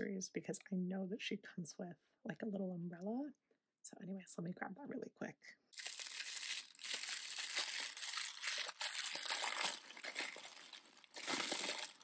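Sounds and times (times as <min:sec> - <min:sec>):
foil wrapper crackling: 0:05.8 - 0:12.0.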